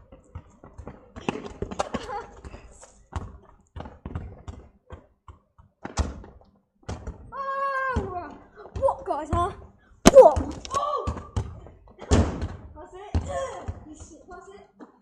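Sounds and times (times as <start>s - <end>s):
football kicked and bounced on tarmac: 0.0s - 7.3s, 7.9s - 14.4s.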